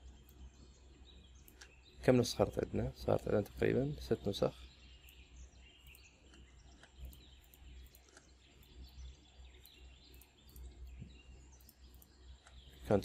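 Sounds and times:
faint bird chirps: 0.0s - 13.0s
soft clicks: 1.4s - 1.8s, 4.9s - 12.8s.

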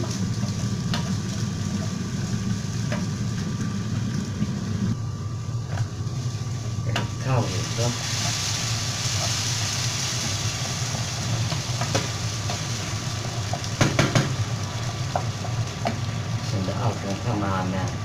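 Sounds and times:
water hissing in hot pan: 0.0s - 5.0s, 6.0s - 18.0s.

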